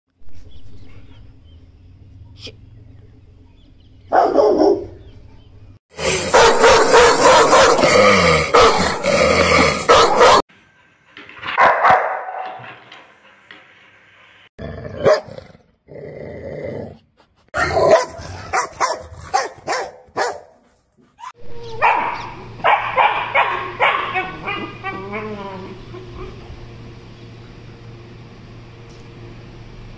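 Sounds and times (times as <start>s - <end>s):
steady low hum: 0.3s - 7.6s, 20.6s - 29.9s
dogs barking and growling: 3.8s - 5.2s, 5.9s - 10.5s, 11.1s - 13.6s, 14.5s - 26.8s.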